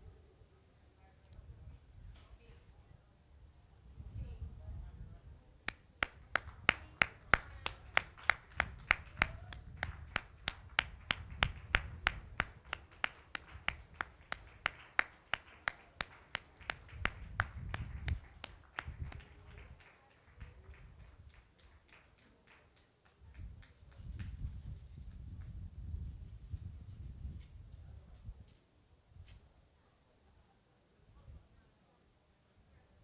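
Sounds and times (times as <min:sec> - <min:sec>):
rhythmic hand clapping: 0:05.7 - 0:24.3.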